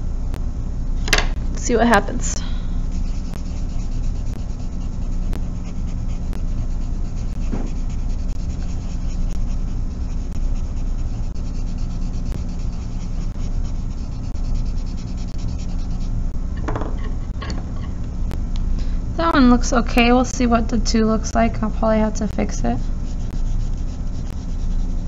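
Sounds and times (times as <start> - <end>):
low hum: 0.0 - 25.0
charcoal rubbing on paper: 2.8 - 16.2, 22.0 - 25.0.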